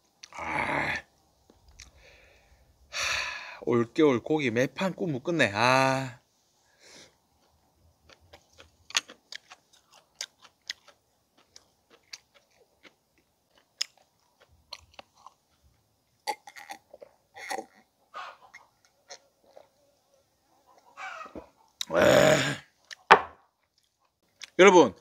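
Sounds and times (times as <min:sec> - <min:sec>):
man chewing crunchy food: 0:01.6 - 0:02.1, 0:07.0 - 0:19.8, 0:21.6 - 0:24.6.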